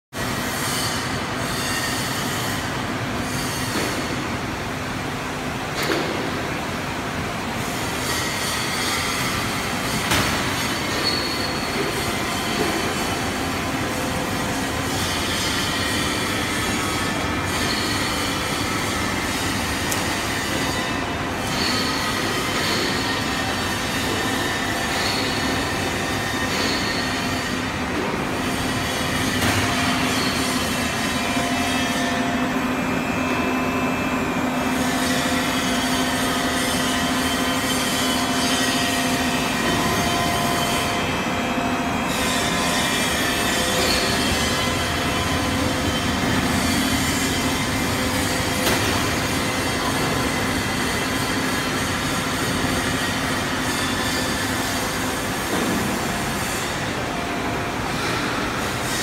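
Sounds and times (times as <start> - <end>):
dense machine noise: 0.1 - 59.0
machine whining tones: 7.6 - 59.0.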